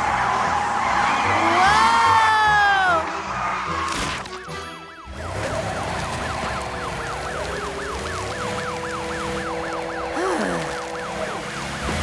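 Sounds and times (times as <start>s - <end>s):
fire truck siren yelping: 4.2s - 12.0s.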